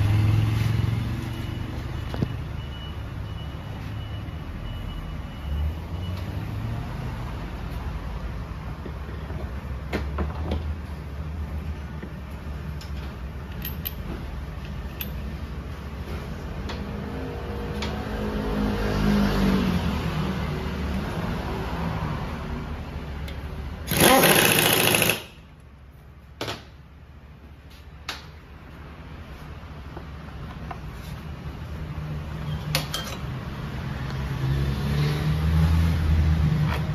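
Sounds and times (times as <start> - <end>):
pneumatic impact wrench rattling: 23.8 - 25.4.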